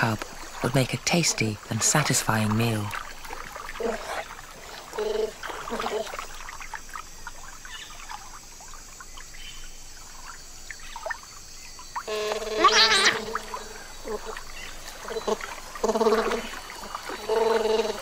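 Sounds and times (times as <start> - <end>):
light splashing: 0.0 - 9.3
water trickling and lapping: 0.0 - 18.0
otter calls: 11.9 - 17.8.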